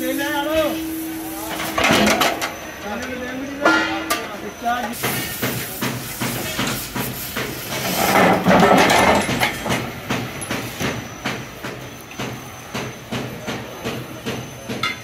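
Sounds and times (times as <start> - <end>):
gas cutting torch hissing: 0.0 - 3.2, 4.4 - 12.9
metal knocks: 3.6 - 4.4.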